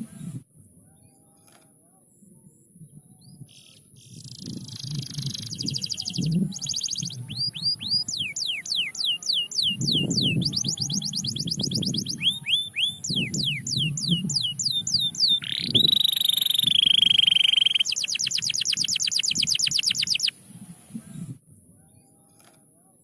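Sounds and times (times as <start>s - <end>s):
canary singing: 3.6s - 20.4s.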